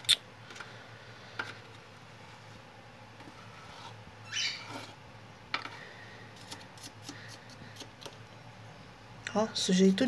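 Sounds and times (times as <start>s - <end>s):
metal spatula scraping: 3.3s - 5.0s.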